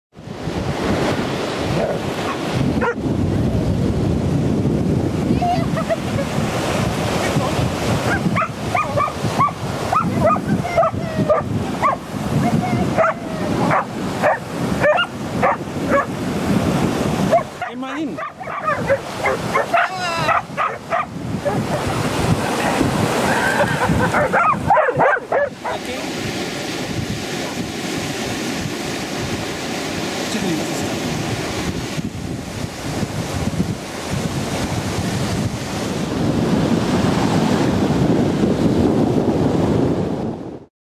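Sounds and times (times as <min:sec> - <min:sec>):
small waves splashing: 0:00.2 - 0:38.7
wind buffeting microphone: 0:00.2 - 0:40.7
dog barking: 0:01.8 - 0:03.0, 0:05.6 - 0:06.0, 0:08.0 - 0:16.2, 0:17.3 - 0:22.8, 0:23.6 - 0:25.9.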